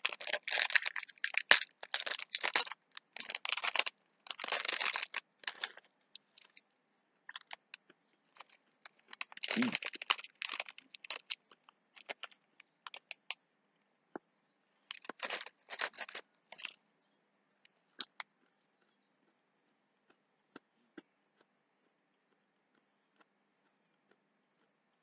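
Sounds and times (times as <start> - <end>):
peanuts crunching: 0.0 - 6.6, 7.2 - 13.4, 14.8 - 16.8, 17.9 - 25.0
plastic packet crinkling: 0.0 - 6.6, 7.3 - 7.7, 8.3 - 13.4, 14.9 - 16.8.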